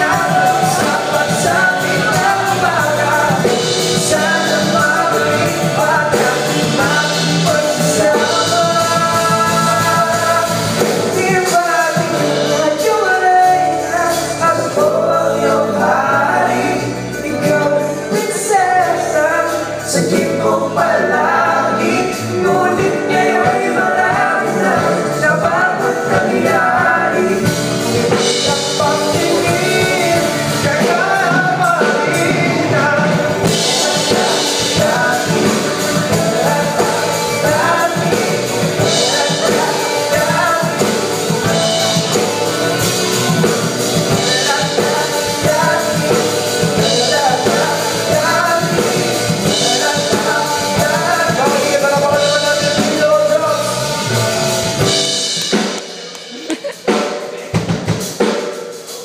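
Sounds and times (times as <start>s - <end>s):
bass guitar: 0.0s - 56.8s
acoustic and electric guitars: 0.0s - 58.2s
lead singer singing: 0.0s - 58.4s
drum kit: 0.0s - 59.0s.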